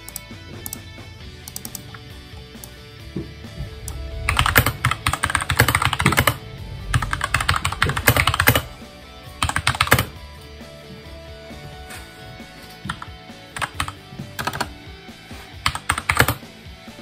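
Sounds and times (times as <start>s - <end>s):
fast typing on mechanical keyboard: 4.3s - 8.7s, 9.4s - 10.1s, 13.6s - 14.7s, 15.6s - 16.4s.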